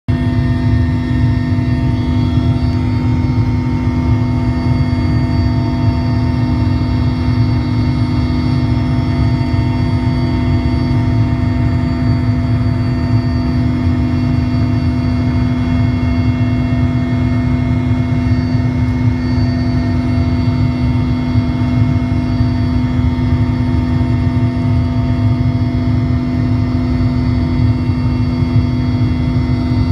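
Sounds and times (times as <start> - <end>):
high whining engine tones: 0.1 - 29.9
helicopter cabin rumble: 0.2 - 29.9.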